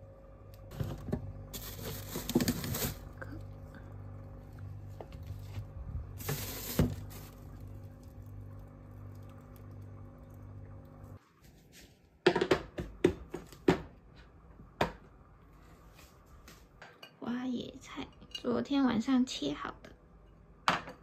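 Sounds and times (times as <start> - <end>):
refrigerator hum: 0.0 - 18.0
plastic packaging rustling: 0.7 - 3.4, 5.1 - 9.5.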